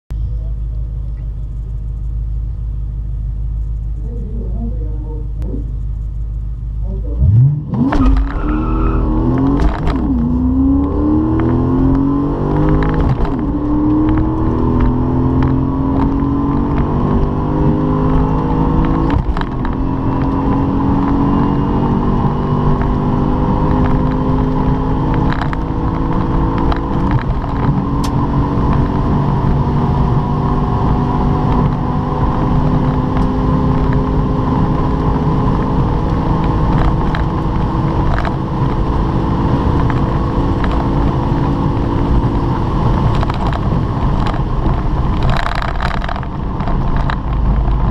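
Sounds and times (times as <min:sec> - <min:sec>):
car engine accelerating: 0:00.1 - 0:47.9.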